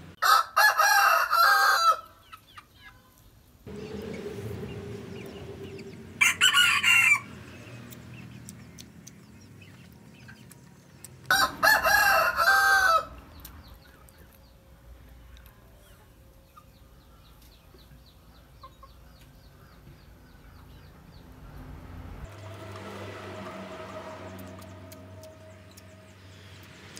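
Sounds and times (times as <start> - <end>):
rooster crowing: 0.2 - 2.2, 5.8 - 7.5, 11.3 - 13.2.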